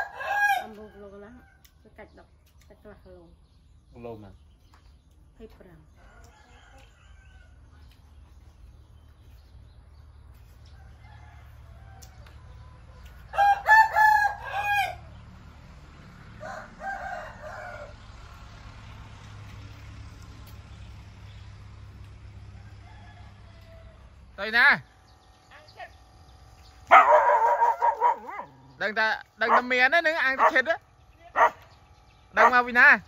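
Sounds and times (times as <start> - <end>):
rooster crowing: 0.0 - 1.7, 10.7 - 15.2, 16.4 - 18.0, 22.5 - 24.3.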